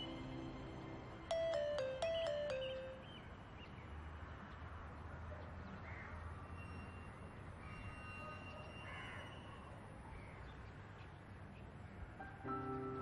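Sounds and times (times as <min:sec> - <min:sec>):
high bird notes: 0:01.3 - 0:03.3.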